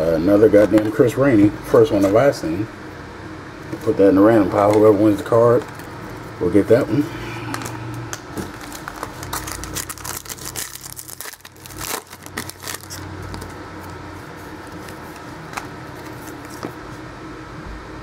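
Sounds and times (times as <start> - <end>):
foil wrapper crinkling and tearing: 7.5 - 16.6.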